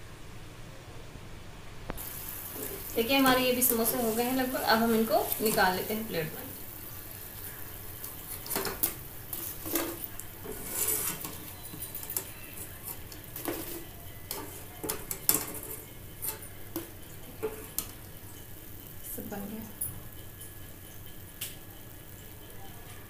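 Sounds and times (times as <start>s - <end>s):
oil sizzling: 1.9s - 23.0s
wire skimmer scraping frying pan: 2.0s - 19.3s.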